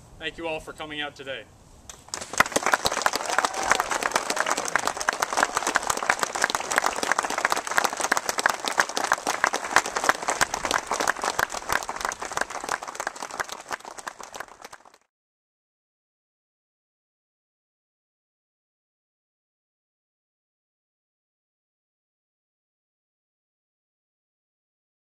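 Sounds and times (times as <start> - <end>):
audience applauding: 2.1 - 15.1.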